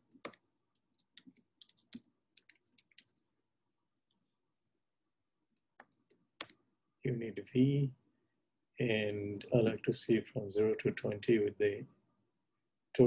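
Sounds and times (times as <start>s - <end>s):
faint typing on keyboard: 0.0s - 3.3s, 5.5s - 6.7s.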